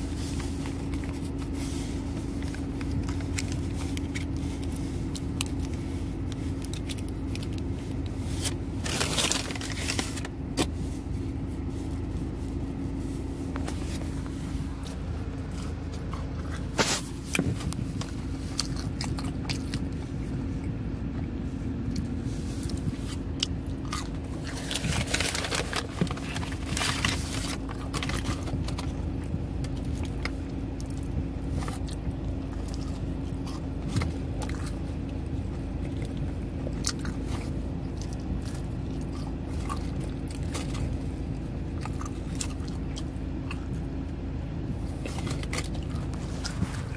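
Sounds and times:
foil lid crinkling: 0:00.0 - 0:10.7, 0:24.1 - 0:29.1
steady low hum in car: 0:00.0 - 0:46.9
food being bitten: 0:18.3 - 0:20.0.

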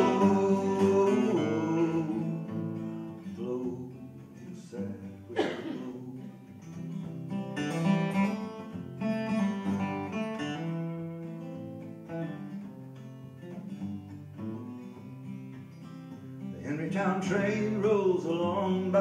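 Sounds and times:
acoustic guitar picked and strummed: 0:00.0 - 0:19.0.

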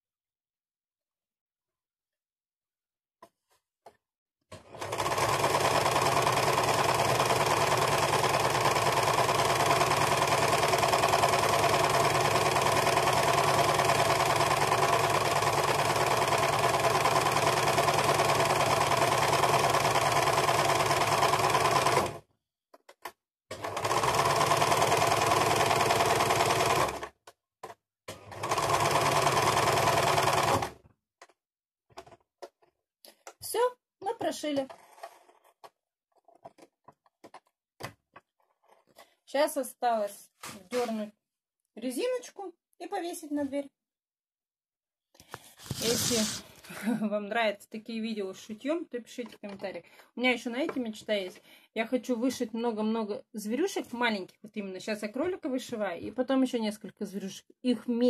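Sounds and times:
electric sewing machine stitching: 0:04.6 - 0:22.2, 0:23.5 - 0:27.2, 0:28.1 - 0:30.8, 0:45.4 - 0:46.6.

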